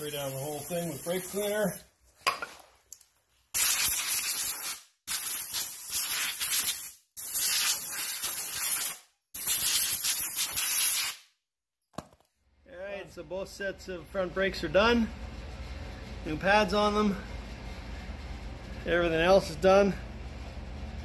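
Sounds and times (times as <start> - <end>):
compressed air hissing bursts: 0.0 - 1.9, 3.6 - 11.2.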